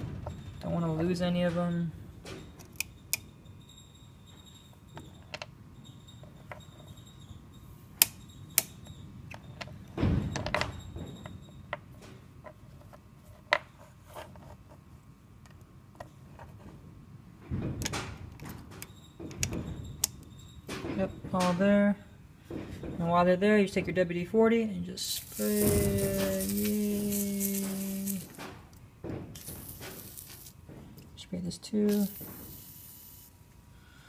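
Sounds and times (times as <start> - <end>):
ball bearings clicking: 25.0 - 28.4, 29.4 - 30.6, 31.9 - 33.4
rustling handling noise: 25.0 - 31.2.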